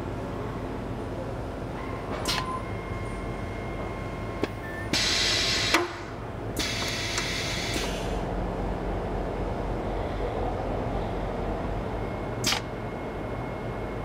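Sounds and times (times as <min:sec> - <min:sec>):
machine hum: 0:00.0 - 0:14.0
sharp machine click: 0:12.4 - 0:12.7.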